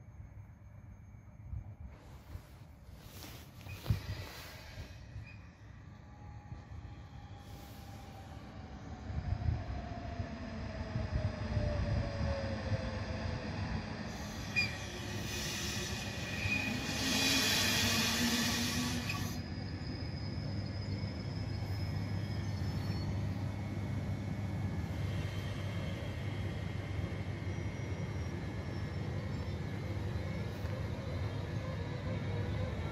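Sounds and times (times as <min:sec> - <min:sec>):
train low rumble: 0:00.0 - 0:32.9
brake hiss: 0:01.9 - 0:05.2, 0:14.1 - 0:19.4
high brake squeal: 0:03.6 - 0:05.6, 0:14.1 - 0:23.4
train motor whine falling: 0:14.2 - 0:19.4.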